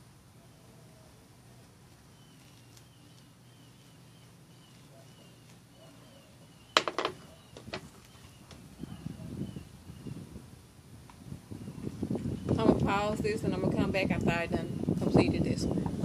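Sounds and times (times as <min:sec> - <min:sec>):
bird chirping faintly: 0:02.1 - 0:10.2.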